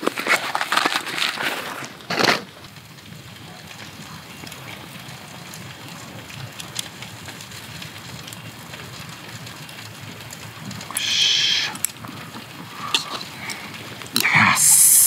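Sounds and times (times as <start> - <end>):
food sizzling on grill: 2.4 - 15.0
loud hiss: 10.9 - 11.8, 14.2 - 15.0.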